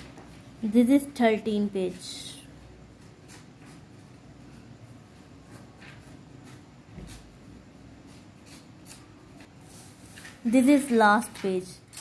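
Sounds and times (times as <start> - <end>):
paper and phone handling rustles: 8.1 - 12.0.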